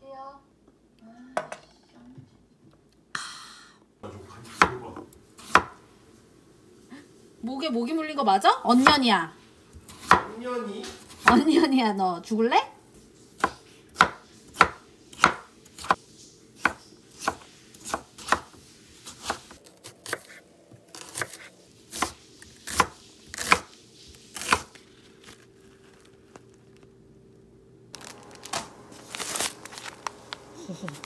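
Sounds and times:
knife chopping on wooden board: 4.5s - 5.8s, 9.8s - 11.4s, 13.4s - 16.0s, 16.6s - 20.4s, 21.0s - 23.7s, 24.4s - 24.8s
plastic packaging rustling: 24.1s - 27.0s, 27.9s - 31.0s.

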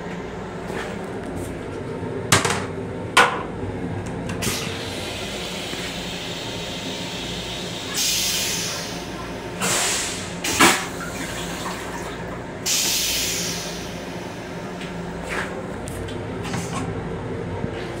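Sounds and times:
toilet flush water spraying: 4.4s - 14.6s.

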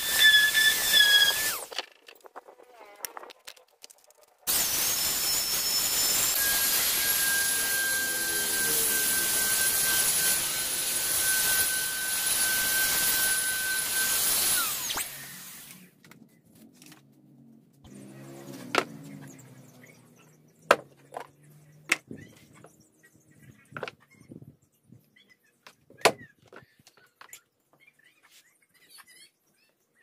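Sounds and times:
paint spray gun hissing and whining: 4.5s - 15.9s.

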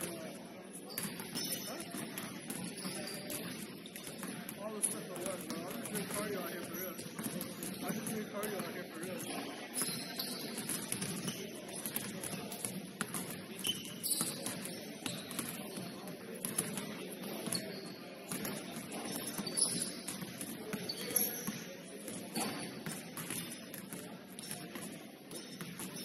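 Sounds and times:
shoe squeaks: 0.8s - 1.9s, 2.6s - 4.9s, 9.2s - 11.5s, 13.6s - 16.0s, 18.9s - 20.2s, 20.8s - 21.7s, 22.3s - 22.8s
basketball bouncing on court: 0.9s - 26.0s.

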